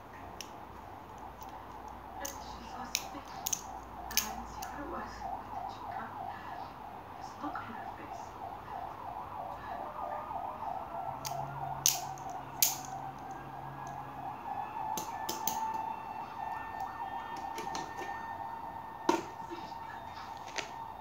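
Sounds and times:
sharp metal clicks: 0:00.4 - 0:04.8, 0:11.2 - 0:14.0
wavering siren-like tone: 0:01.2 - 0:21.0.

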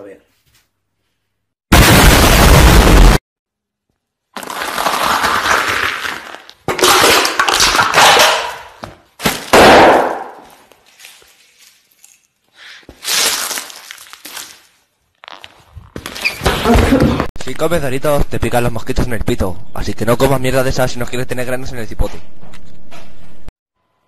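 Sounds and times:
loud distorted explosion: 0:01.7 - 0:03.2.

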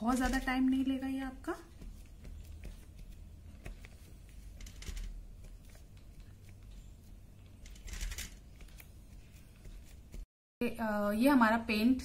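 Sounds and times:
cotton buds tapping on paper: 0:01.6 - 0:04.6.

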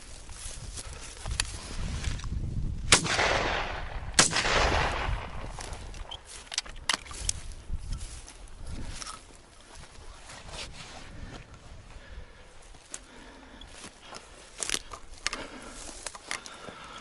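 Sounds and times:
wind rumbling on microphone: 0:00.0 - 0:12.6
rustling footsteps: 0:00.0 - 0:17.0
shotgun shots with rolling echo: 0:02.9 - 0:05.9.

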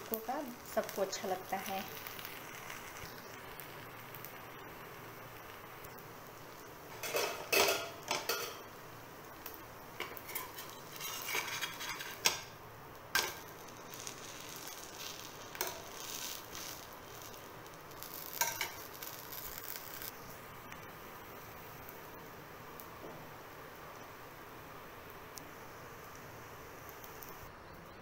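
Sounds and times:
faint pan sizzle: 0:00.0 - 0:28.0
metal spatula scraping frying pan: 0:06.9 - 0:08.6, 0:10.0 - 0:12.5.

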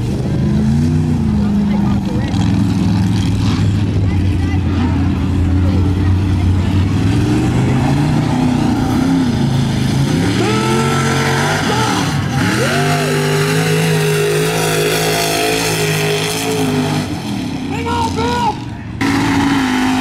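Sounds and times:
truck engine revving: 0:00.0 - 0:20.0.

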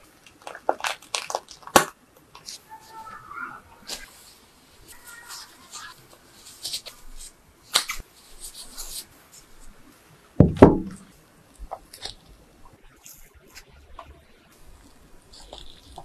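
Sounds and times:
plastic gloves crinkling: 0:00.0 - 0:16.0
brief deep thud: 0:10.4 - 0:11.1.

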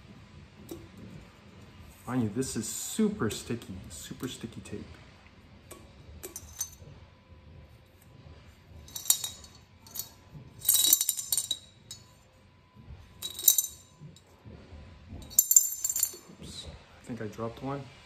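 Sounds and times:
coins rattling in ceramic bank: 0:08.8 - 0:12.1, 0:13.2 - 0:13.9, 0:15.3 - 0:16.3.

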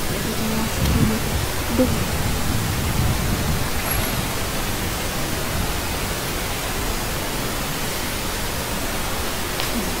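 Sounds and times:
loud static hiss: 0:00.0 - 0:10.0.

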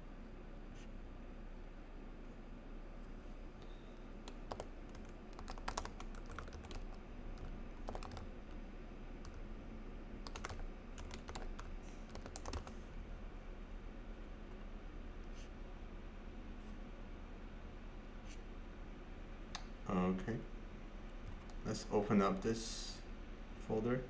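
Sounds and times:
computer keyboard typing: 0:04.2 - 0:08.6, 0:10.2 - 0:12.7, 0:21.2 - 0:21.6.

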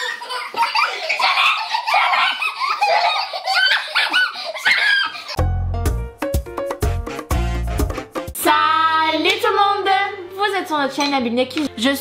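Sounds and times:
girls laughing: 0:00.0 - 0:05.4
music with heavy bass beat: 0:05.9 - 0:08.4.

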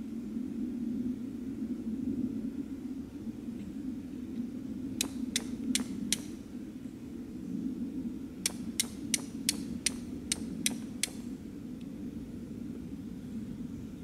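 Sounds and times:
steady low hum: 0:00.0 - 0:14.0
steel striking flint clicks: 0:05.0 - 0:06.4, 0:08.4 - 0:11.3.

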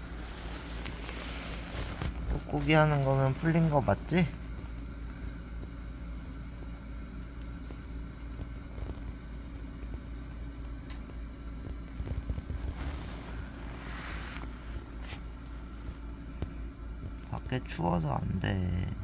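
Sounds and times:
fabric rustling: 0:00.0 - 0:04.7, 0:11.7 - 0:16.7
low background hum: 0:00.0 - 0:19.0.

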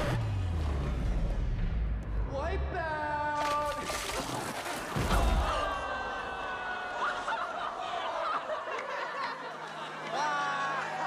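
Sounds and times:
teenagers laughing and jeering: 0:04.2 - 0:11.0.

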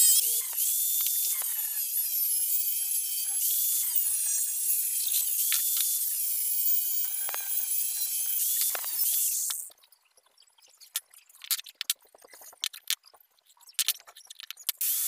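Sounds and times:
angle grinder cutting steel: 0:00.0 - 0:09.7.

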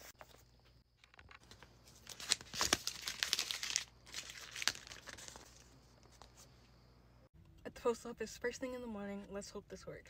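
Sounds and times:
packaging crinkling and rustling: 0:01.0 - 0:06.4.

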